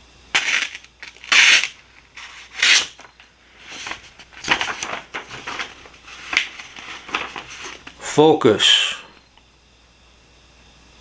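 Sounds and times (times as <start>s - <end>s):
paper rustling: 0.3s - 8.0s
knife blade slicing paper: 0.4s - 3.1s.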